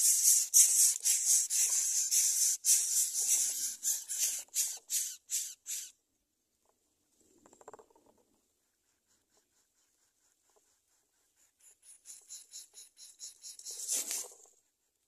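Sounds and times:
nestlings hissing: 0:00.0 - 0:05.9.

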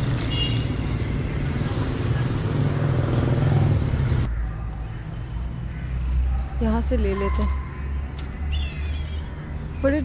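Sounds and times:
passing vehicles rumbling: 0:00.0 - 0:10.0.

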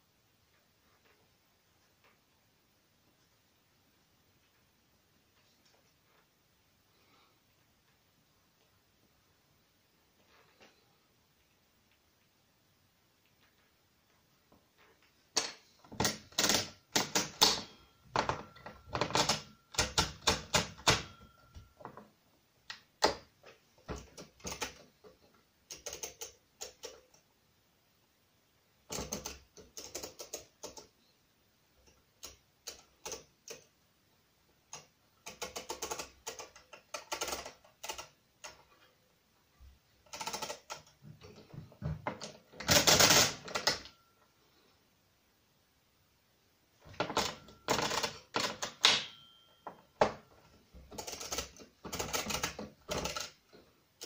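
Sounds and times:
mechanical calculator clicking: 0:16.0 - 0:21.2, 0:24.2 - 0:24.8, 0:25.7 - 0:27.2, 0:28.9 - 0:30.9, 0:32.2 - 0:33.7, 0:34.7 - 0:38.6, 0:40.1 - 0:40.9, 0:42.6 - 0:44.0, 0:47.0 - 0:49.3, 0:50.9 - 0:53.4.

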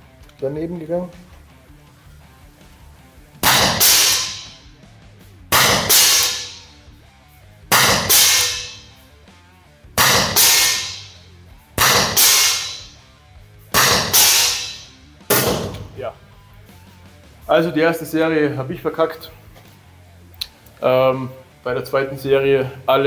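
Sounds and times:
gas pistol shots: 0:03.4 - 0:04.6, 0:05.5 - 0:06.7, 0:07.7 - 0:08.9, 0:10.0 - 0:11.2, 0:11.8 - 0:13.0, 0:13.8 - 0:16.0
ball hitting target: 0:03.4 - 0:04.7, 0:05.5 - 0:06.7, 0:07.7 - 0:08.9, 0:10.0 - 0:11.2, 0:11.8 - 0:13.0, 0:13.8 - 0:16.0.

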